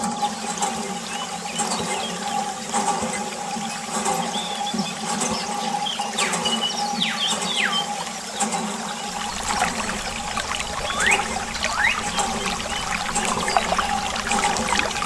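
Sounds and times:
water trickling and splashing: 8.1s - 15.0s.

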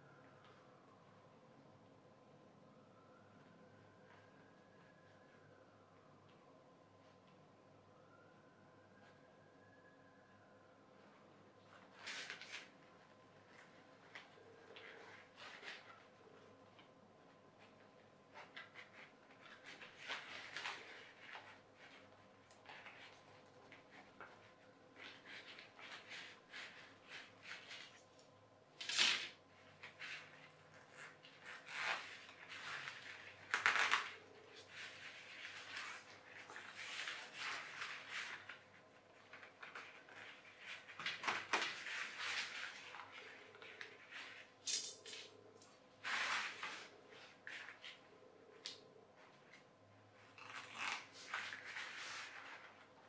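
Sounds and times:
fabric rustling: 29.2s - 53.0s.

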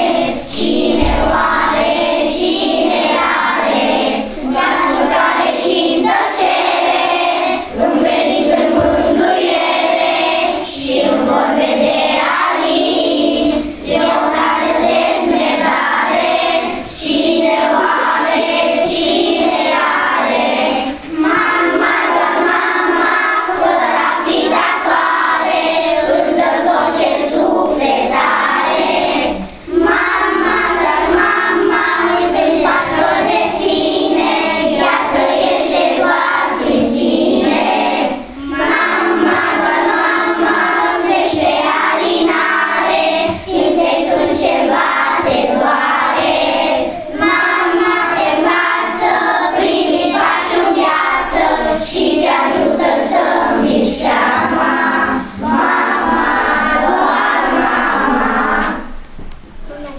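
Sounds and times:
children singing in chorus: 0.0s - 59.8s.

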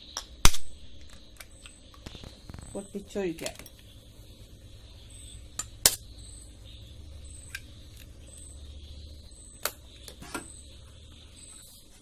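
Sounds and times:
eggshell clicks: 0.1s - 2.8s.

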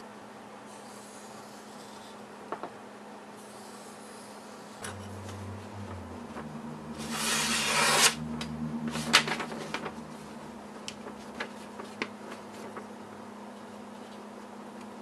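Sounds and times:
paper crackling: 10.9s - 13.0s.

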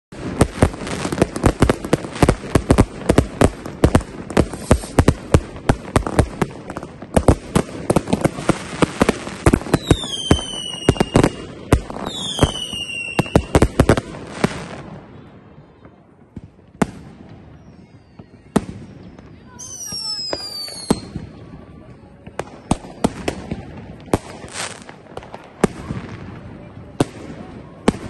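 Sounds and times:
fireworks bangs and cracks: 0.1s - 28.0s
descending firework whistles: 4.4s - 5.2s, 9.6s - 14.8s, 17.0s - 23.5s.

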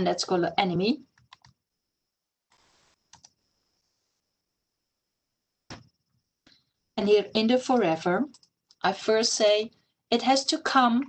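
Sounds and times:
computer keyboard and mouse clicks: 1.2s - 1.6s, 2.5s - 3.4s, 7.8s - 8.8s.

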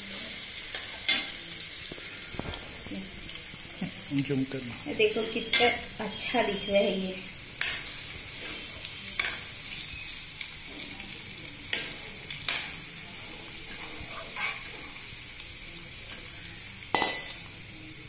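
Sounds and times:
egg sizzling in a pan: 0.0s - 18.0s
spoon scraping and clinking pan: 13.7s - 15.0s, 16.9s - 17.4s.

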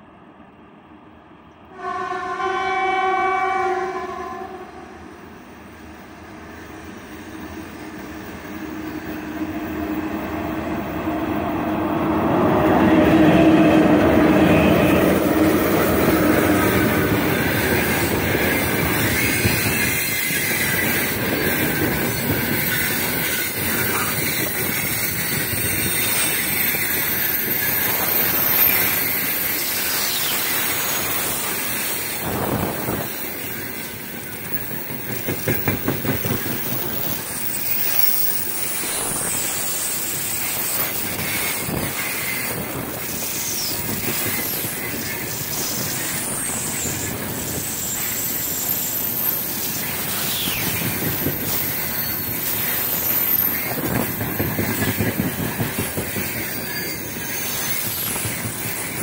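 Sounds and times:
train horn blast: 1.7s - 5.2s, 12.9s - 15.7s.

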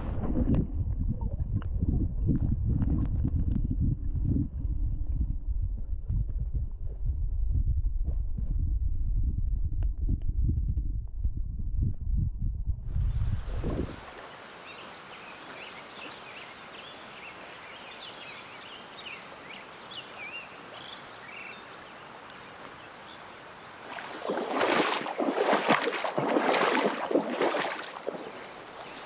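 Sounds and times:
small birds chirping: 13.0s - 24.4s
rough rush of water close by: 23.8s - 28.6s.

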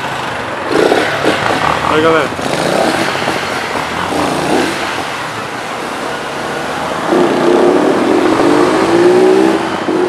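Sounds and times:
road traffic on flooded street: 0.0s - 10.0s
vehicle engine accelerating: 6.6s - 10.0s.

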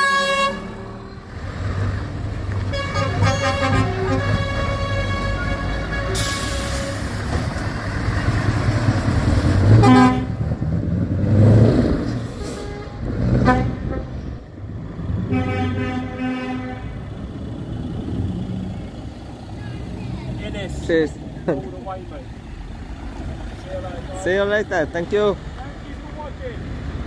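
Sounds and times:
truck horn blasts: 0.0s - 1.1s, 2.6s - 7.1s, 9.7s - 10.5s, 12.4s - 14.4s, 15.2s - 17.2s
diesel truck engine pulling away: 0.0s - 27.0s.

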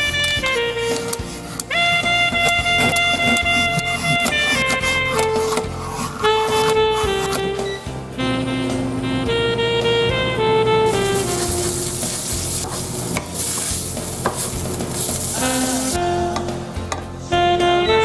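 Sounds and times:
jazz saxophone music: 0.0s - 18.0s
wooden spatula scraping pan: 0.2s - 7.7s, 10.9s - 16.0s
beef sizzling in hot oil: 10.9s - 16.0s.

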